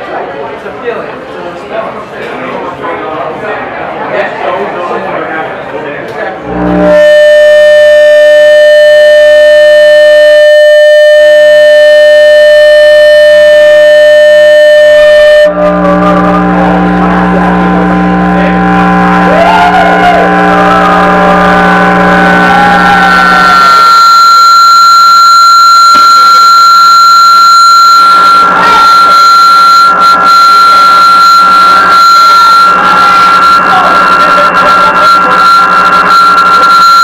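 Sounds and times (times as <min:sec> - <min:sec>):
low hum with warbling tones: 0:06.4 - 0:09.4, 0:13.6 - 0:37.0
buzzy electronic drone: 0:06.4 - 0:37.0.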